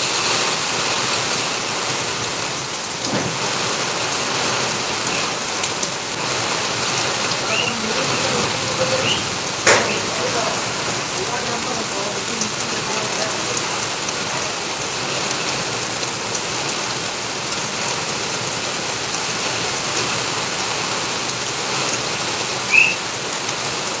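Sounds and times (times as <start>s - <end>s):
heavy rain on pavement: 0.0s - 24.0s
short high chirp: 22.7s - 23.0s.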